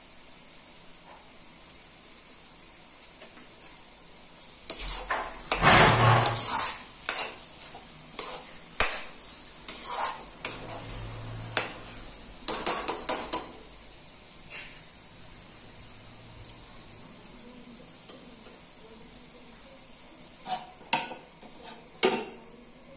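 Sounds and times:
low steady hiss: 0.0s - 22.9s
metal spatula scraping pan: 4.7s - 13.5s, 20.4s - 22.0s.

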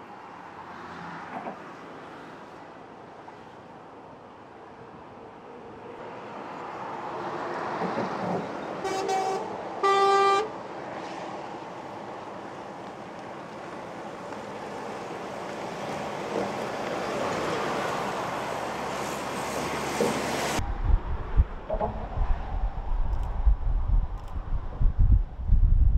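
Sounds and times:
heavy trucks driving past: 5.8s - 22.8s
truck horn: 8.8s - 10.5s.

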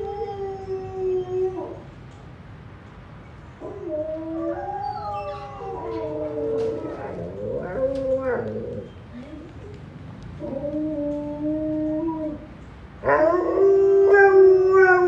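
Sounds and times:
dog howling: 3.6s - 8.9s, 10.4s - 15.0s.

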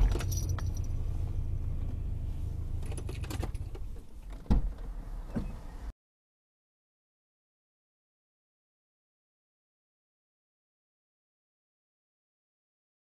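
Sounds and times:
car engine idling: 0.0s - 5.9s.

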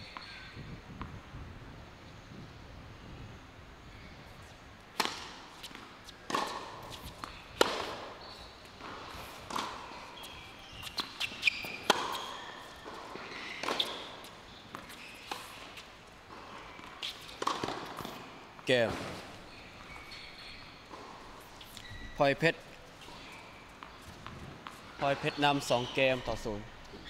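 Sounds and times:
racket striking tennis ball: 4.9s - 18.3s
tennis ball bouncing: 4.9s - 18.7s
short high shoe squeaks: 5.6s - 15.9s, 16.8s - 22.3s, 24.8s - 27.0s.

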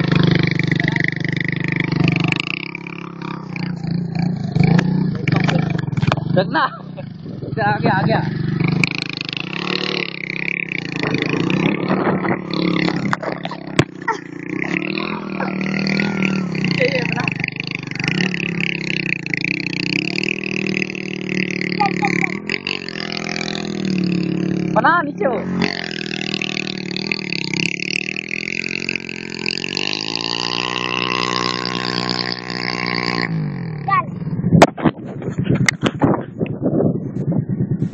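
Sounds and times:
small motorcycle engine running: 0.0s - 37.9s
wheel spinning in sand: 25.5s - 33.8s.

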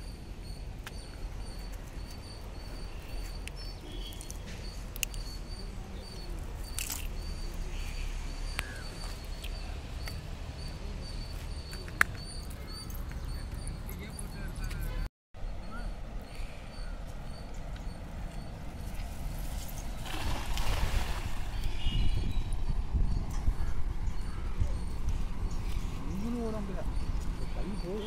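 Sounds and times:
faint high chirp: 0.0s - 18.6s
wind rumble on microphone: 18.6s - 27.5s.

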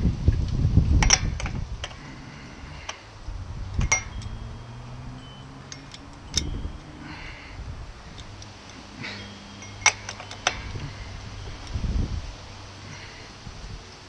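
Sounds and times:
socket and ratchet clinking: 3.7s - 7.0s, 8.1s - 11.8s.

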